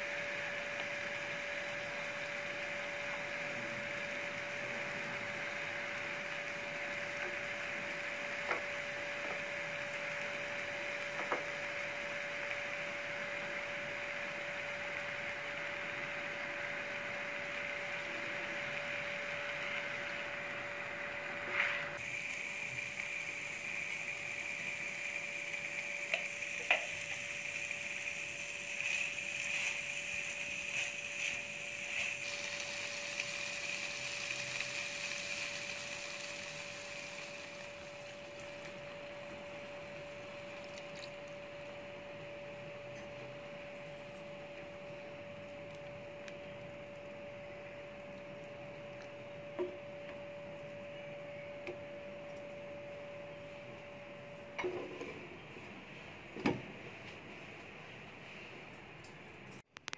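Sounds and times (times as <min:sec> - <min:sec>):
chicken and onion sizzling in a pan: 0:00.0 - 0:41.0
steady hum: 0:00.0 - 0:59.9
chicken simmering in water: 0:22.0 - 0:41.8.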